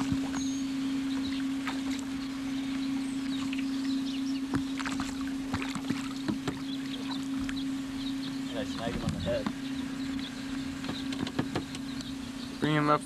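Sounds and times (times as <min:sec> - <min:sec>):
low electric hum: 0:00.0 - 0:13.0
light knocks and clicks: 0:10.8 - 0:12.1.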